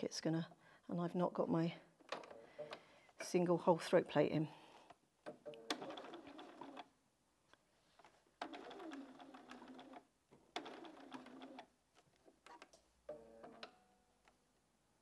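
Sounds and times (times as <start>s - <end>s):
sewing machine stitching: 4.7s - 6.9s, 8.4s - 13.8s.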